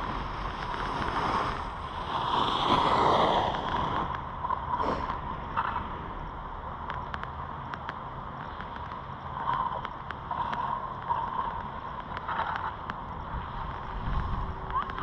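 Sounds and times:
wind on microphone: 0:00.0 - 0:05.9, 0:11.3 - 0:15.0
faint ticks: 0:06.8 - 0:15.0.

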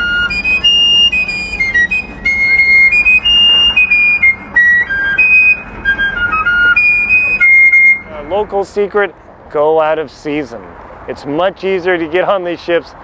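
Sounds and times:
fife playing tune: 0:00.0 - 0:08.8.

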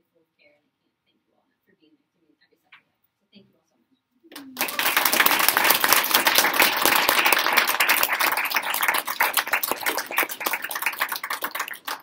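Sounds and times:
audience applauding: 0:04.4 - 0:12.0.

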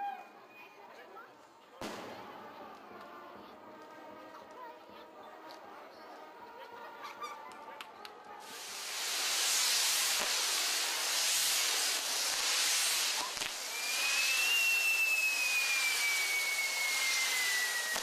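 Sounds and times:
firework spark jets hissing: 0:08.4 - 0:18.0
firework whistling tone: 0:08.4 - 0:18.0.

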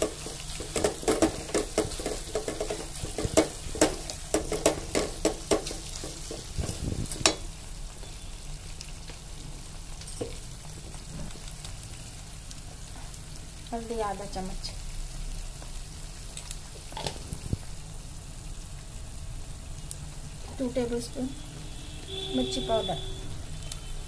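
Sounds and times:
wooden spoon stirring in pot: 0:00.0 - 0:07.5
onions sizzling in hot oil: 0:00.0 - 0:24.0.

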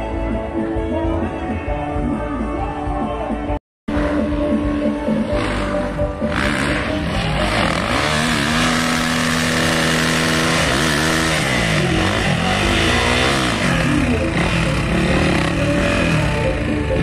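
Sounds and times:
dirt bike engine revving: 0:03.9 - 0:17.0.

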